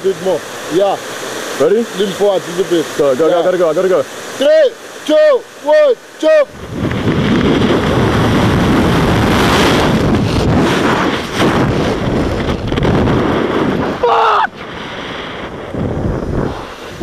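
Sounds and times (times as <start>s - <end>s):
person yelling: 4.4s - 6.6s, 14.0s - 14.6s
wind rushing over microphone: 6.2s - 17.0s.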